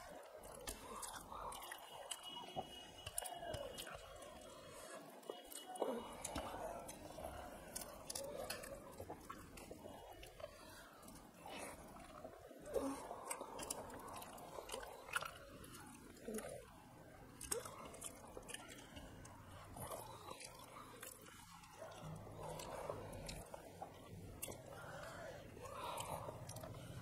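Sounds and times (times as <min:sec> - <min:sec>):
wet mouth clicks and smacks: 0:00.0 - 0:04.4, 0:17.2 - 0:25.2
chewing rice: 0:00.0 - 0:27.0.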